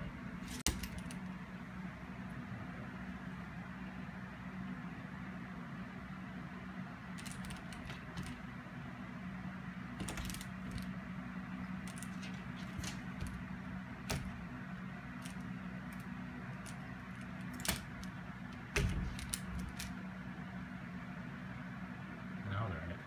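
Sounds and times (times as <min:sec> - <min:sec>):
steady low hum: 0:00.0 - 0:23.0
toy clicking and rattling on door: 0:07.2 - 0:08.4, 0:10.0 - 0:10.9, 0:15.2 - 0:20.0.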